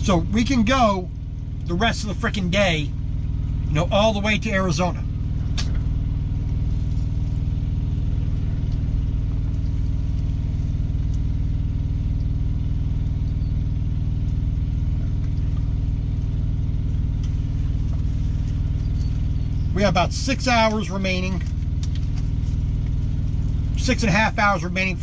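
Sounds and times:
truck diesel engine idling: 0.0 - 25.0.

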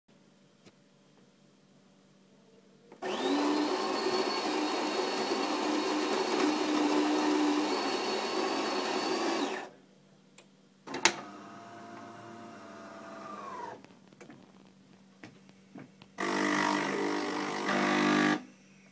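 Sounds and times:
coffee grinder grinding beans: 3.0 - 9.7
motor hum: 10.9 - 14.6.

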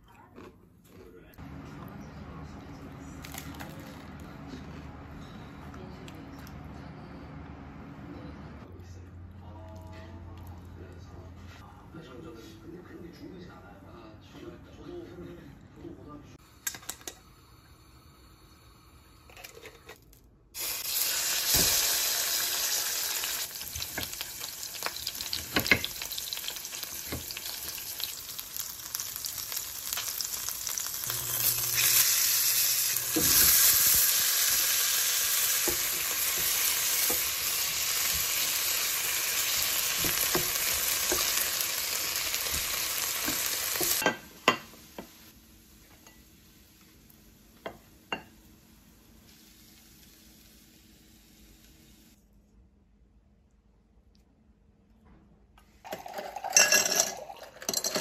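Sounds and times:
fish sizzling in hot oil: 20.6 - 44.1.

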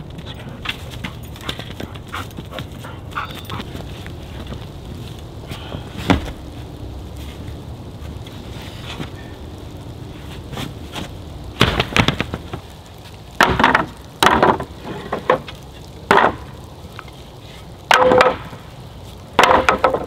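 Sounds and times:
wooden boards clattering on pile: 13.4 - 16.5, 17.9 - 18.6, 19.4 - 20.0.

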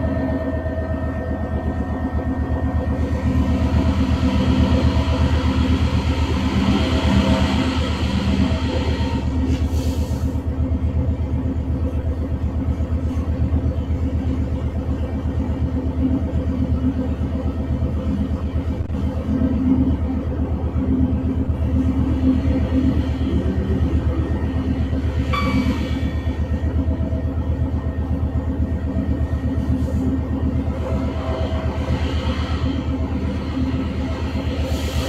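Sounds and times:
diesel locomotive engine throbbing: 0.0 - 35.0
hiss: 9.5 - 10.4, 34.6 - 35.0.

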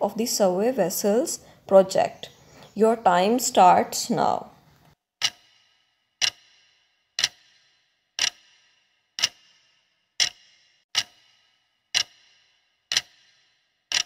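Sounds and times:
clock ticking with ring: 5.2 - 14.0.

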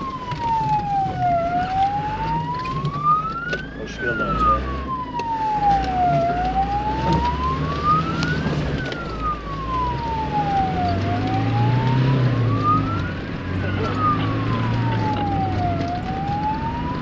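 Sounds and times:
vehicle engine rumble: 0.0 - 17.0
wailing siren: 0.0 - 17.0.

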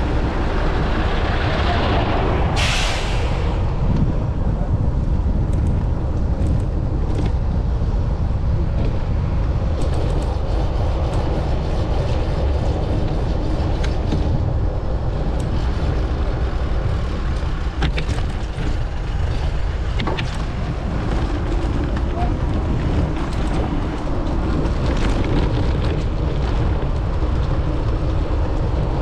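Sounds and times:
street traffic rumble: 0.0 - 29.0
sharp clicks and knocks: 9.7 - 10.4, 17.3 - 22.2.

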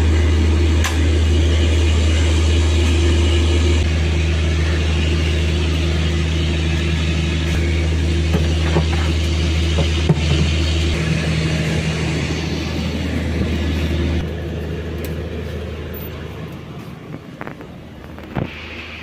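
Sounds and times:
lower droning tone: 0.0 - 19.0
train machinery humming: 0.0 - 19.0.

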